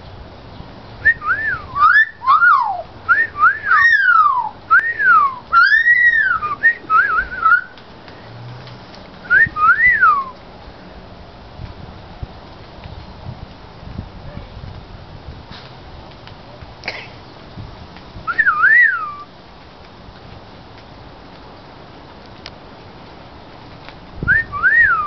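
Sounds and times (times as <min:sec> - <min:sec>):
magpie wolf whistling: 0:01.1 - 0:07.7.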